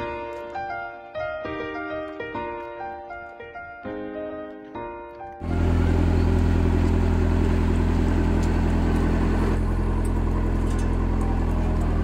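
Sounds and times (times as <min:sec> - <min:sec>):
road roller diesel engine humming: 0:05.4 - 0:12.0.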